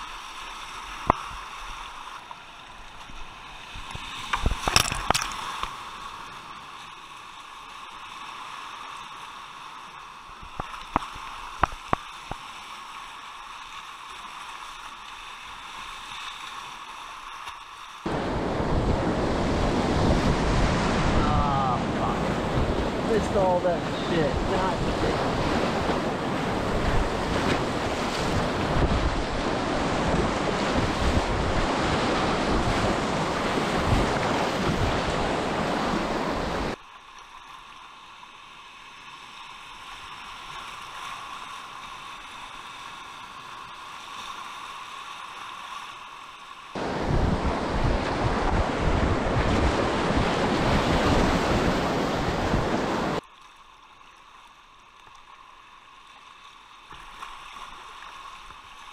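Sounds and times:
whitewater rapids rushing: 18.0s - 36.8s, 46.8s - 53.2s
wind buffeting microphone: 18.1s - 36.8s, 46.8s - 53.2s.

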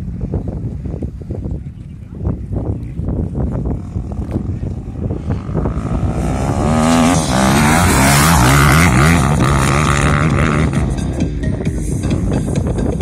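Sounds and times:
dirt bike engine revving: 3.8s - 11.1s.

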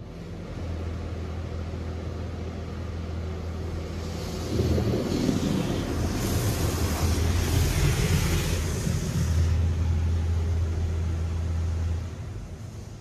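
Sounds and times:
steady low hum: 1.3s - 13.0s
car wash spraying water: 2.2s - 13.0s.

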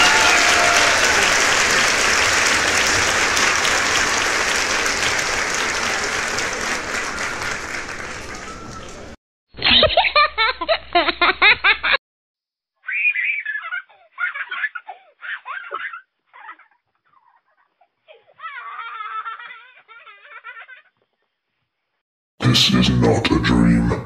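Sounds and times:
applause: 0.0s - 9.2s
laughter: 9.6s - 12.0s.

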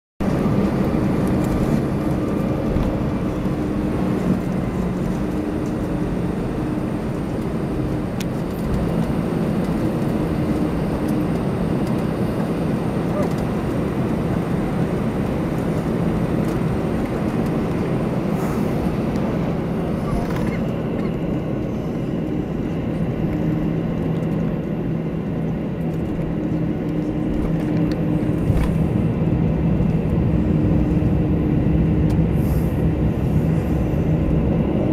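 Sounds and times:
jet engines humming in cabin: 0.2s - 34.9s.

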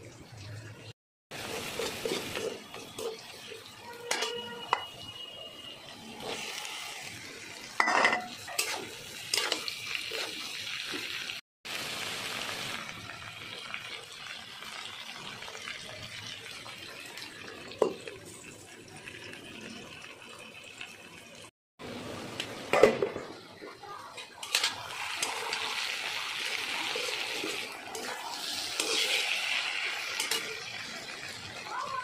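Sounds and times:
frying sizzle: 0.0s - 32.0s
spatula scraping wok: 1.3s - 5.4s, 6.0s - 11.3s, 24.1s - 31.4s.

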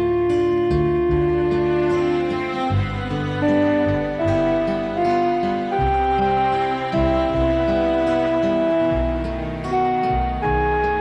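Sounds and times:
instrumental title music: 0.0s - 11.0s.

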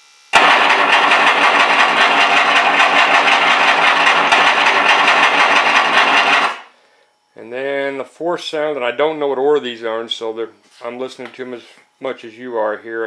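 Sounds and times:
machine-gun sound effect: 0.4s - 6.7s.

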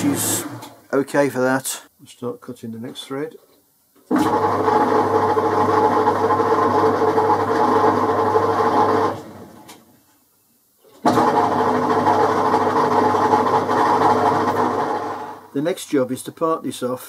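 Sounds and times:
metal lathe motor hum: 0.0s - 0.8s.

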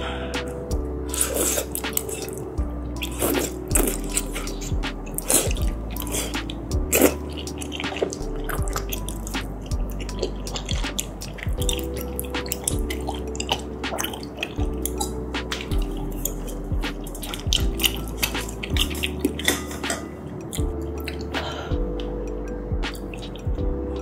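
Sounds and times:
background music with bass: 0.0s - 24.0s
wet chewing with clicks: 0.4s - 24.0s
noodle slurp: 1.0s - 20.1s.

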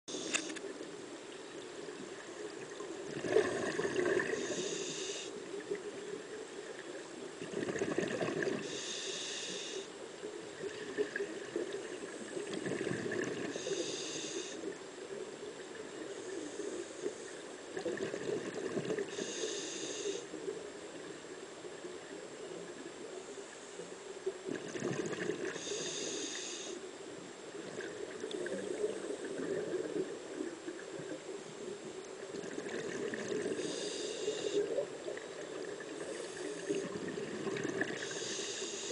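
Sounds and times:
exhaled bubbles underwater: 2.5s - 4.7s, 7.4s - 8.7s, 10.6s - 13.6s, 17.8s - 19.2s, 24.4s - 25.7s, 27.6s - 38.2s
regulator breathing hiss: 4.4s - 5.4s, 8.6s - 9.9s, 13.5s - 14.7s, 19.1s - 20.4s, 25.6s - 26.8s, 33.5s - 34.8s, 38.0s - 38.9s.

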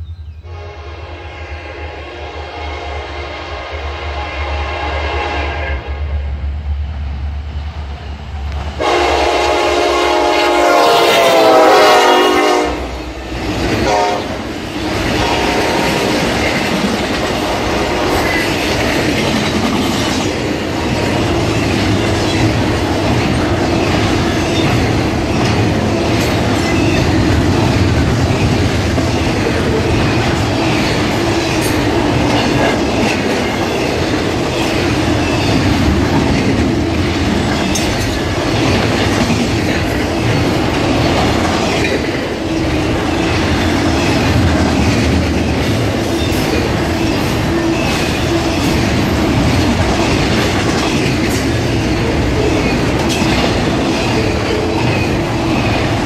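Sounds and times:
locomotive horn blast: 0.4s - 6.3s, 8.8s - 13.0s, 13.8s - 14.4s, 15.0s - 16.1s
train wheels rolling on rails: 6.3s - 56.0s.

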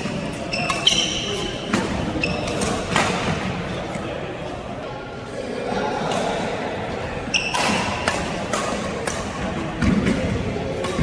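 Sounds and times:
racket hitting shuttlecock: 0.0s - 3.5s, 7.4s - 11.0s
shoe squeak: 0.3s - 2.8s, 7.3s - 8.0s.

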